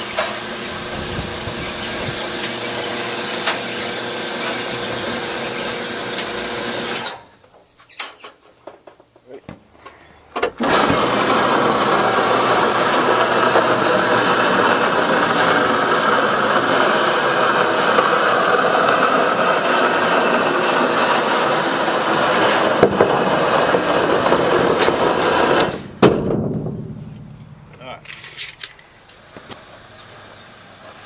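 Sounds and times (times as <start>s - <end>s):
gutter machine running: 0.0s - 7.3s, 10.6s - 26.2s.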